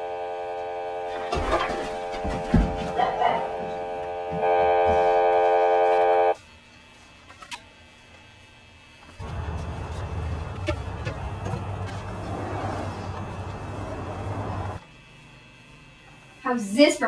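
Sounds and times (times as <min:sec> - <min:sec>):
sustained musical chord: 0:00.0 - 0:06.4.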